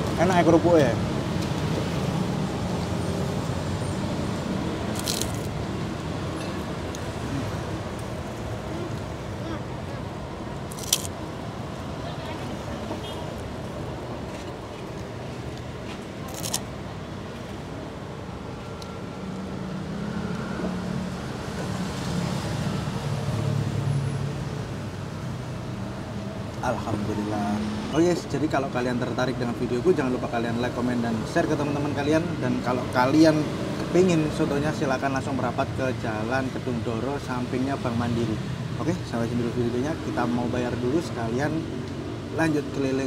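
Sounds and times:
road traffic: 0.0 - 43.0
cracker crunching: 4.9 - 5.6, 10.7 - 11.2, 16.2 - 16.7.

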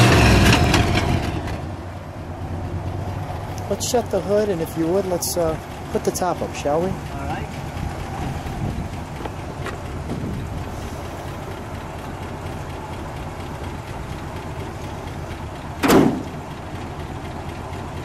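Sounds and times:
car engine idling: 0.0 - 18.0
car hood slammed shut: 15.8 - 16.4.

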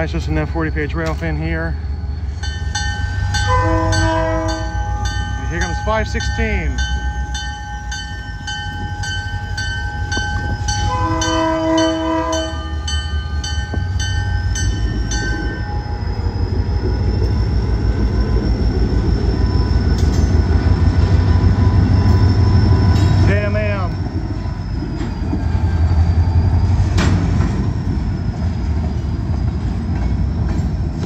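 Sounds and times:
diesel locomotive engine rumble: 0.0 - 31.0
warning bell ringing: 2.3 - 16.6
train horn blast: 3.5 - 5.2, 10.8 - 13.0.

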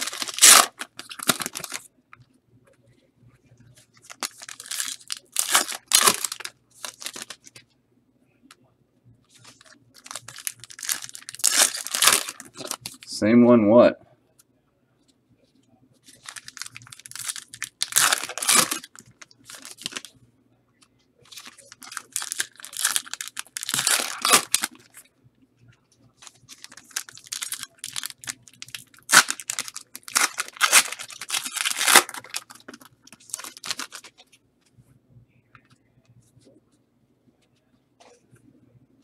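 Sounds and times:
card pack wrappers tearing: 0.0 - 1.8, 4.1 - 7.5, 9.5 - 13.1, 16.2 - 20.1, 21.3 - 25.0, 26.2 - 34.2.

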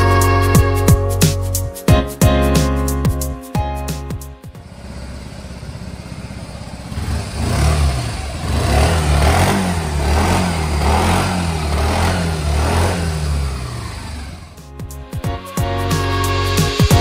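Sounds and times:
scooter engine idling and revving: 4.2 - 15.0.

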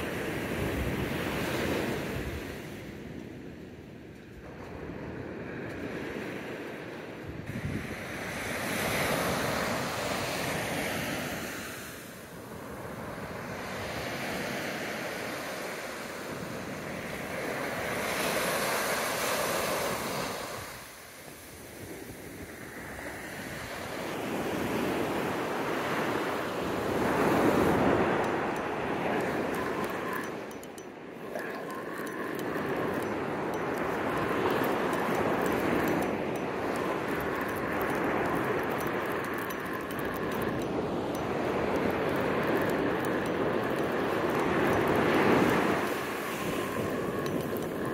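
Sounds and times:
wind buffeting microphone: 0.0 - 11.7, 21.4 - 47.9
ocean surf breaking: 22.5 - 47.9.

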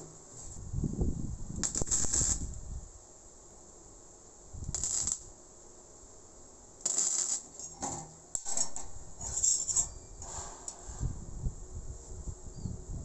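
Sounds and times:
steel pieces clinking: 6.9 - 10.0.

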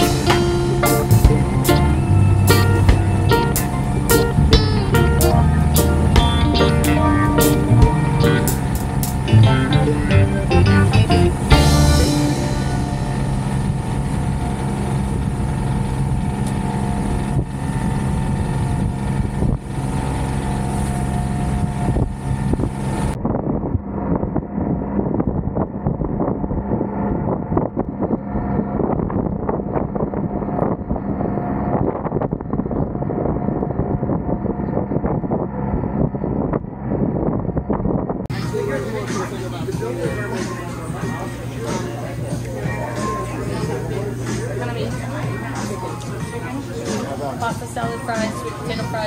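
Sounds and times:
engine droning: 0.0 - 49.0
wind buffeting microphone: 12.3 - 38.5.

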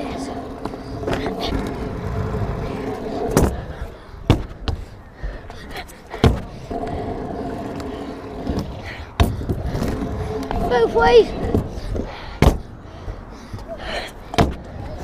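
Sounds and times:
scooter wheels rolling on asphalt: 0.0 - 15.0.

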